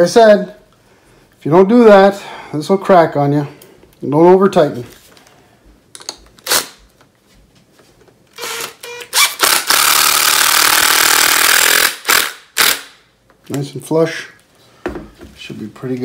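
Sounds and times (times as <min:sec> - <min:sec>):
cordless drill driving screw: 0:08.4 - 0:12.9.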